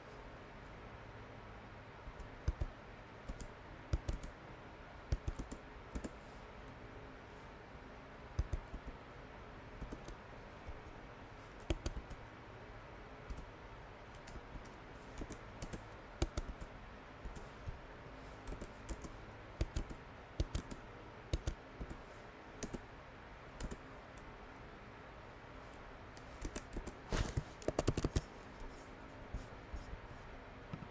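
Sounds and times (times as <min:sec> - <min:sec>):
faint steady hiss: 0:00.0 - 0:30.9
keyboard typing clicks: 0:02.1 - 0:04.4, 0:05.1 - 0:06.2, 0:08.4 - 0:08.9, 0:09.8 - 0:10.2, 0:11.6 - 0:12.2, 0:13.3 - 0:13.5, 0:14.1 - 0:17.5, 0:18.4 - 0:22.0, 0:22.6 - 0:22.8, 0:23.6 - 0:24.3, 0:26.2 - 0:27.0, 0:27.6 - 0:28.3.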